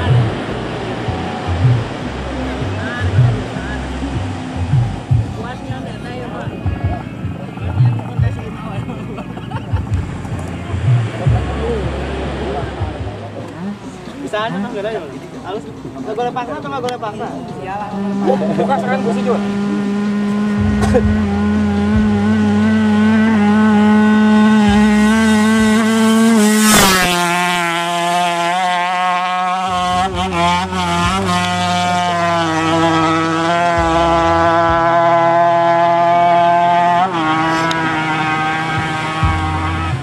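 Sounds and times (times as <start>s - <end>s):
racing motorcycle engine at high revs: 17.9s - 40.0s.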